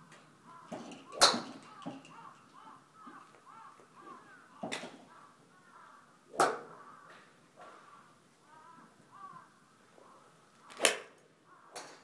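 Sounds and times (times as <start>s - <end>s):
golf clubs striking balls: 0.1s - 3.9s, 4.6s - 5.1s, 6.3s - 7.8s, 10.7s - 12.0s
crows cawing: 0.5s - 10.8s, 11.5s - 12.0s.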